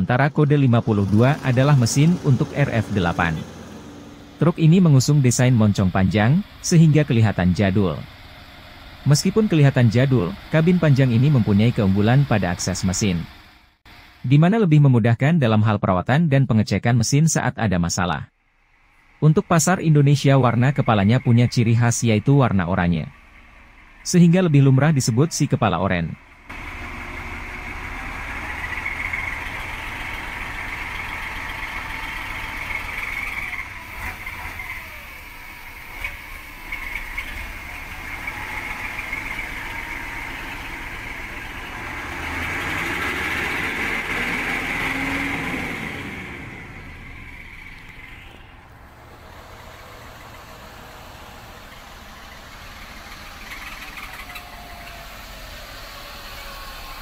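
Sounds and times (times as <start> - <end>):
truck diesel engine running: 0.0 - 14.3, 18.4 - 57.0.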